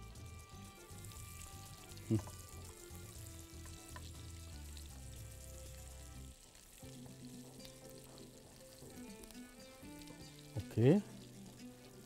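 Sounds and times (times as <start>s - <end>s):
butter sizzling in oil: 0.0s - 12.0s
spatula stirring in a pan: 0.8s - 12.0s.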